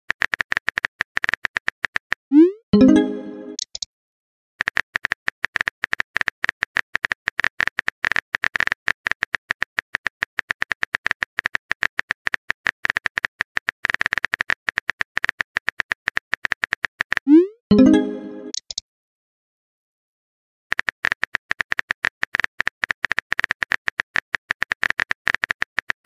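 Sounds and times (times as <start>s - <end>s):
rapid keyboard key clicks: 0.1s - 2.2s, 4.6s - 17.2s, 20.7s - 26.0s
rising message-sent tone: 2.4s - 3.6s, 17.3s - 18.6s.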